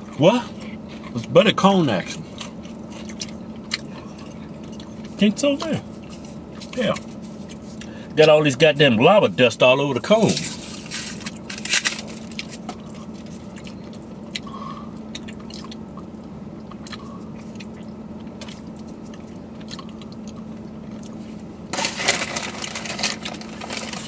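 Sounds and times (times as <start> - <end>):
car interior hum: 0.0 - 24.0
wet licking and mouth smacking: 12.4 - 21.2
chip bag rustling: 21.7 - 24.0.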